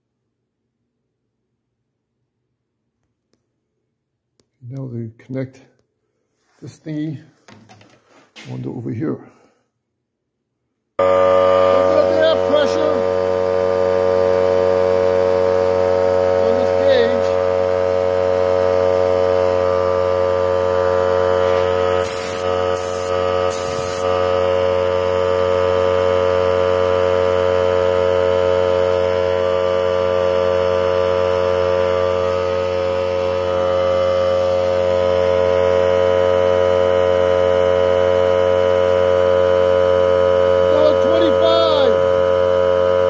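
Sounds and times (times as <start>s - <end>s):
air compressor motor humming: 11.0s - 43.0s
short air hisses: 22.0s - 24.1s.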